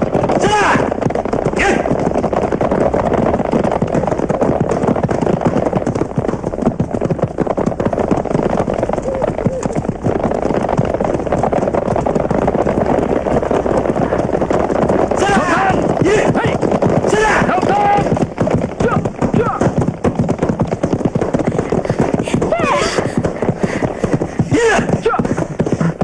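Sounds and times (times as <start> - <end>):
battle clatter and rumble: 0.0 - 26.0
people shouting: 0.4 - 0.9, 1.6 - 1.9, 15.2 - 18.1, 22.3 - 23.2, 24.5 - 25.2.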